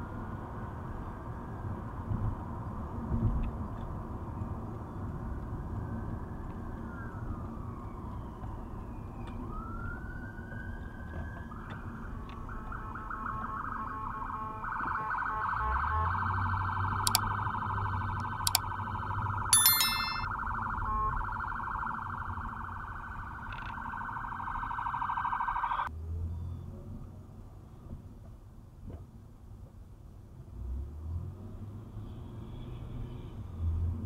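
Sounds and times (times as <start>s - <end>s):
emergency siren wailing: 5.6s - 25.9s.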